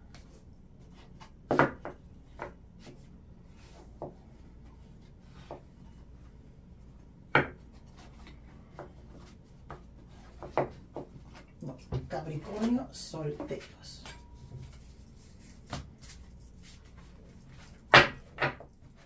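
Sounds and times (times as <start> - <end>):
soft rubbing: 11.2 - 17.9.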